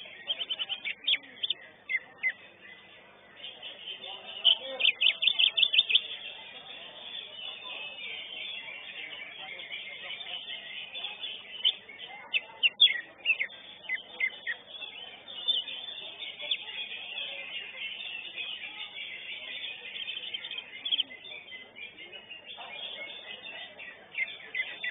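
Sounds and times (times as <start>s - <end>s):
bird singing sharp high chirps: 0.0s - 24.9s
steady background noise: 0.0s - 24.9s.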